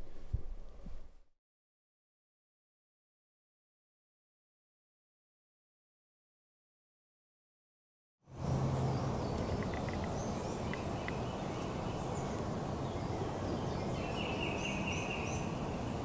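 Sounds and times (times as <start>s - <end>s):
small birds chirping: 8.3s - 16.0s
stream rushing: 8.3s - 16.0s.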